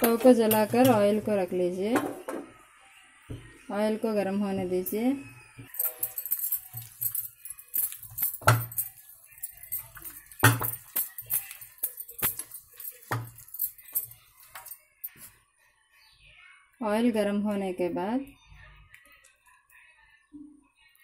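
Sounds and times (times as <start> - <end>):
glass bangles clinking: 5.6 - 15.2.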